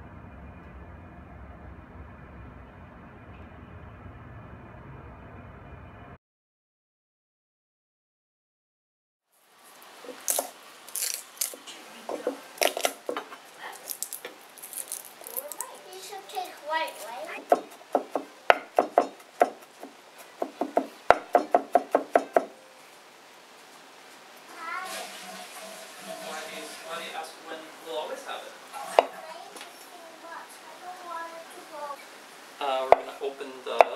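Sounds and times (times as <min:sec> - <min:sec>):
steady background noise: 0:09.4 - 0:33.9
knife chopping on wooden board: 0:12.1 - 0:13.3, 0:17.4 - 0:22.5.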